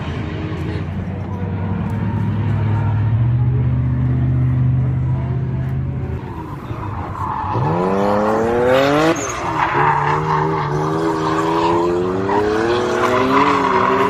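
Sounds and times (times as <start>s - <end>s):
car engines droning: 0.0s - 14.0s
tyre squeal: 6.3s - 14.0s
car engine revving hard: 7.2s - 14.0s.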